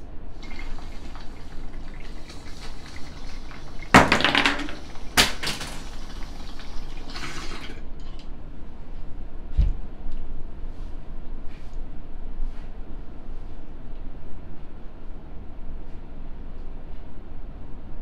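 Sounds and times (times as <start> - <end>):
water bubbling in a bong: 0.4 - 7.9.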